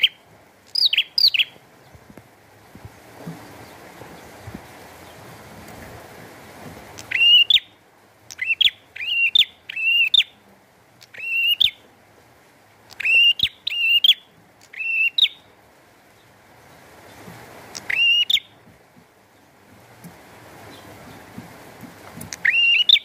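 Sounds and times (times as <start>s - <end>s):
bird whistling upward notes: 0.0s - 1.6s, 7.0s - 7.7s, 8.3s - 10.3s, 11.1s - 11.8s, 13.0s - 15.4s, 17.8s - 18.5s, 22.4s - 23.0s.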